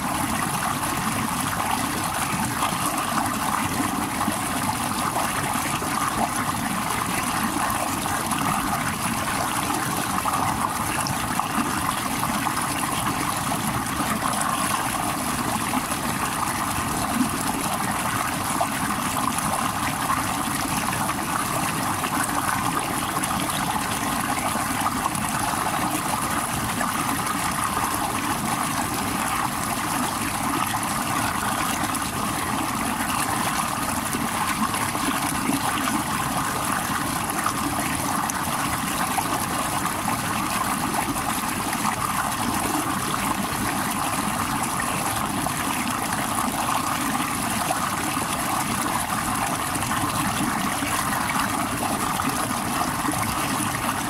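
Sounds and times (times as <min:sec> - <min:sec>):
stream spilling over rocks: 0:00.0 - 0:54.0.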